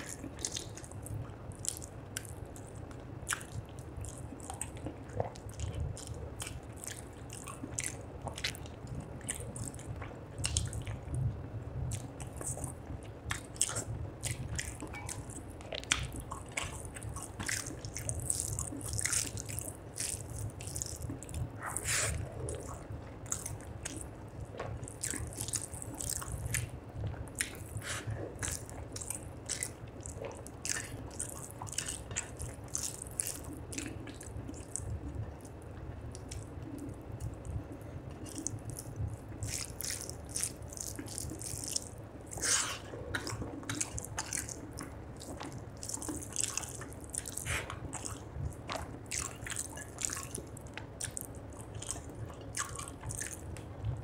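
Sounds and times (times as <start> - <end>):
wet chewing and lip smacking: 0.0 - 54.0
fingers squelching rice in gravy: 13.3 - 24.1, 38.2 - 53.4.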